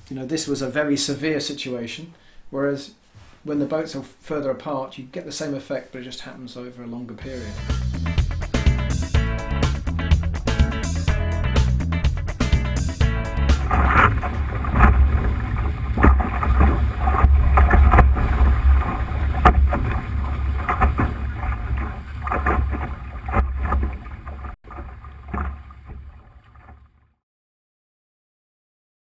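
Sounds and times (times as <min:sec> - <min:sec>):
water splashing against hull: 0:13.0 - 0:27.2
wind rumbling on microphone: 0:13.6 - 0:26.6.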